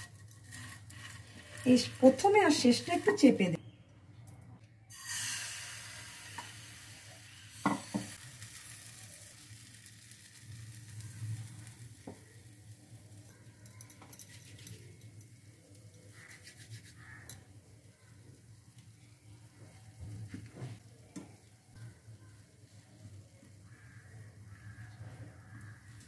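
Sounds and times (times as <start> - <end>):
batter sizzling in frying pan: 0.0 - 3.2, 4.9 - 13.4.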